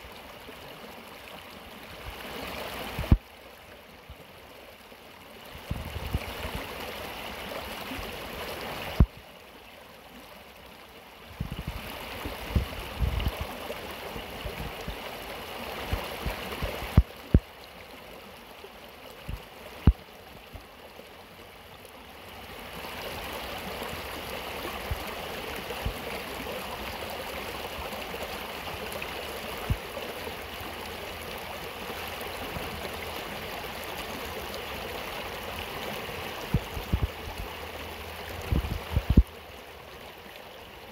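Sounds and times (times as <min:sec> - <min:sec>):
stream splashing over stones: 0:00.0 - 0:40.9.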